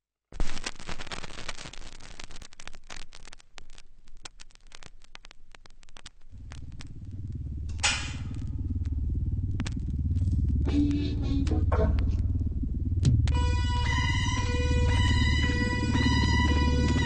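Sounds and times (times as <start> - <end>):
crunching and crackling clicks: 0.3 - 17.0
low deep sound: 6.3 - 17.0.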